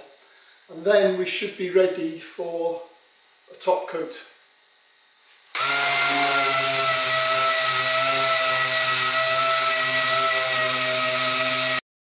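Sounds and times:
pneumatic sander whining and hissing: 5.5 - 11.8.

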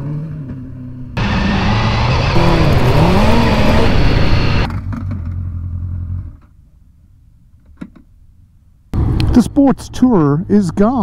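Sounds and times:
motorcycle engine revving: 0.0 - 5.4.

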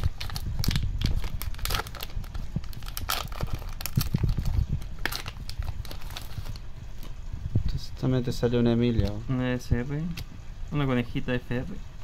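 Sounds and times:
plastic wrapper crinkling and tearing: 0.0 - 6.6.

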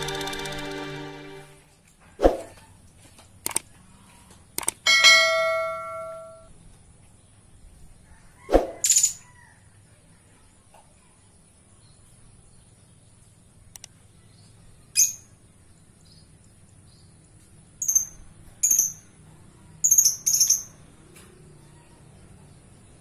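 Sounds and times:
lovebird chirping: 19.8 - 20.8.

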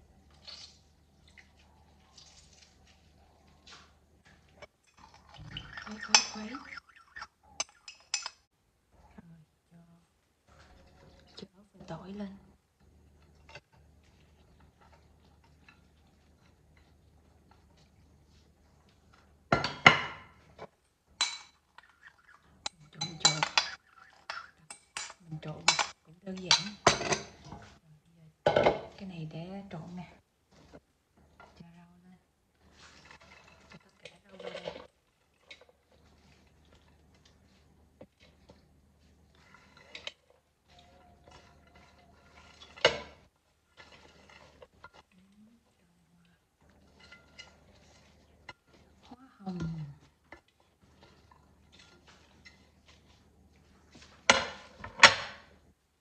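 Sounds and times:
utensils clinking against dishes: 7.6 - 8.5, 22.6 - 27.5
vegetables rustling: 32.6 - 45.9.

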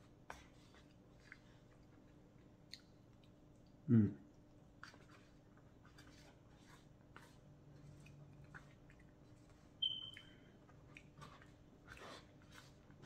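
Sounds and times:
short high squeak: 9.8 - 10.2.

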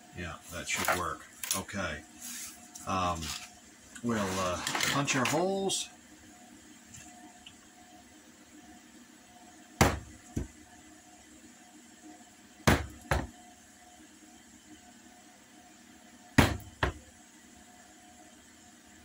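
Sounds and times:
mallet striking hole punch: 16.4 - 17.0.

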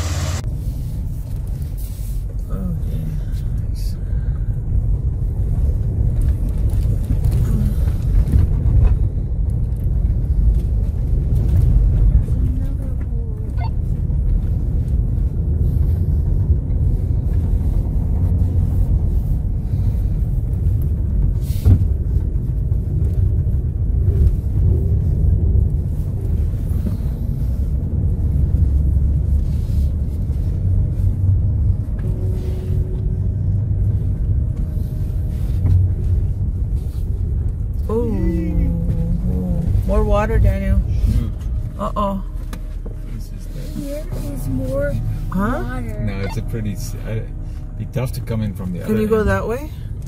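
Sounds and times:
vehicle engine and tyres rumbling: 0.0 - 50.0.

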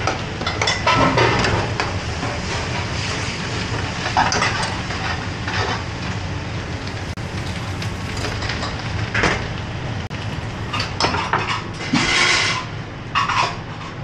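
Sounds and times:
gas burners rushing: 3.0 - 12.8.

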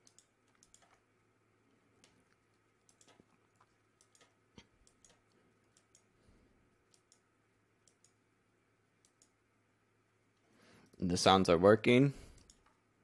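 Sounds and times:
mouse and keyboard clicks: 0.0 - 1.0, 2.0 - 6.1, 6.9 - 7.2, 7.9 - 8.2.

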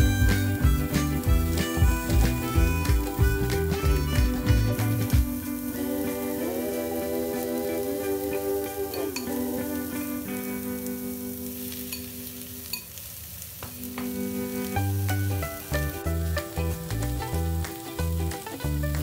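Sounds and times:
background music with bass line: 0.0 - 6.0, 14.8 - 19.0
beef and onions sizzling in a pan: 0.0 - 19.0.

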